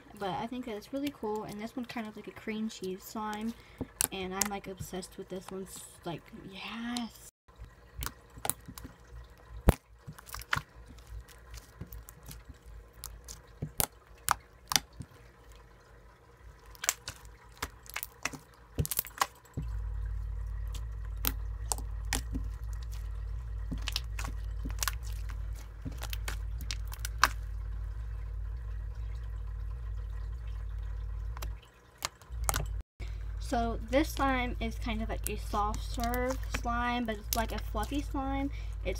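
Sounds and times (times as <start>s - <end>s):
slime squished by hand: 9.6s - 15.1s, 16.7s - 19.7s, 20.7s - 27.5s
steady low rumble: 18.8s - 38.9s.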